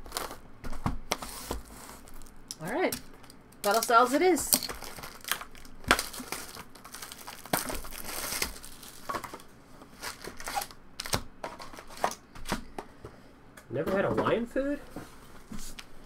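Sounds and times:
plastic wrapping tearing and crumpling: 0:00.0 - 0:00.4, 0:01.1 - 0:12.2.

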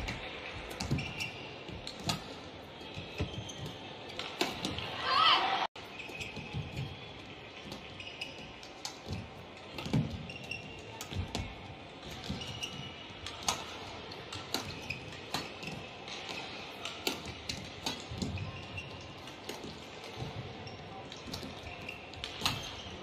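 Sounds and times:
shoes squeaking: 0:00.0 - 0:23.0
rackets hitting shuttlecock: 0:03.0 - 0:05.0, 0:07.6 - 0:18.6, 0:21.1 - 0:23.0.

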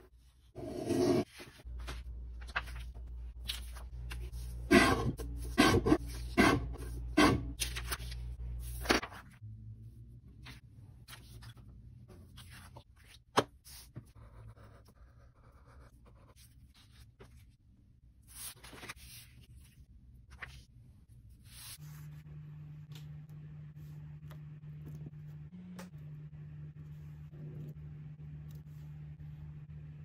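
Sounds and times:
pencil scratching on paper: 0:00.6 - 0:01.4
paper rustling on a table: 0:01.3 - 0:04.5, 0:07.6 - 0:09.4, 0:18.3 - 0:20.6
low steady hum: 0:14.2 - 0:30.0.

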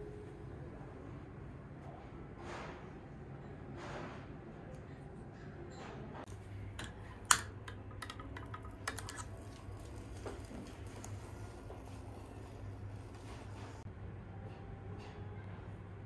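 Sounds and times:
gas lighter clicking: 0:06.8 - 0:09.3.

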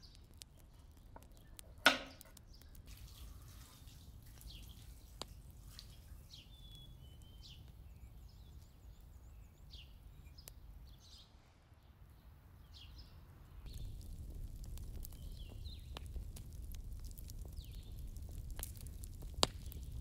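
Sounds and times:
small birds chirping: 0:00.0 - 0:20.0
faint low rumble: 0:13.5 - 0:20.0.

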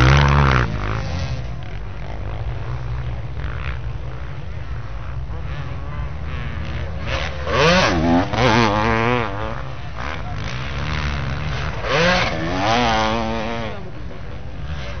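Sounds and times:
motorcycle engines revving: 0:00.0 - 0:15.0
motorcycle passing: 0:00.0 - 0:15.0.

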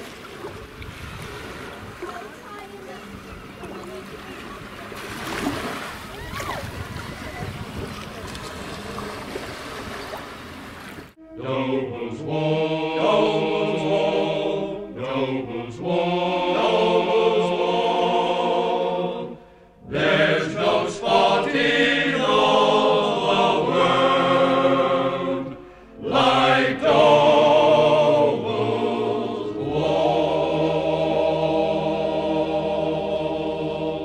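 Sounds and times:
voices singing held notes: 0:11.1 - 0:34.0.

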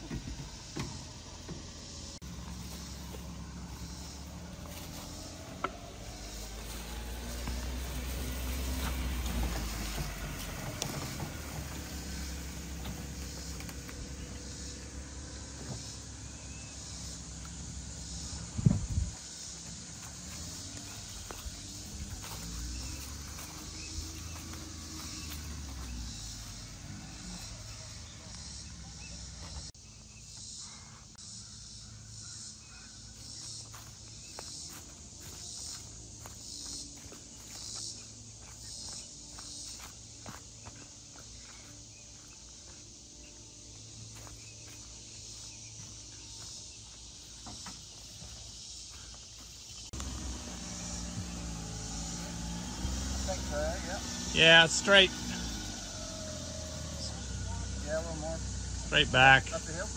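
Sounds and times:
small truck engine running: 0:00.0 - 0:29.8, 0:33.1 - 0:59.9
insects hissing: 0:00.0 - 0:59.9.

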